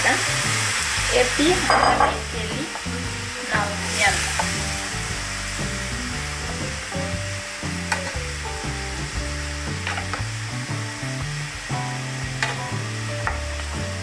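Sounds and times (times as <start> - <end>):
chicken sizzling in a frying pan: 0.0 - 14.0
wooden spoon knocking pan: 1.6 - 2.9, 9.8 - 10.3, 12.4 - 12.6, 13.2 - 13.6.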